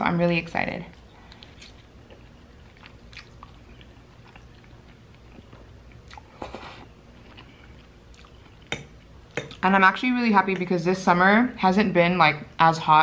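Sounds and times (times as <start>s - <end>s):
wet chewing: 0.9s - 9.7s.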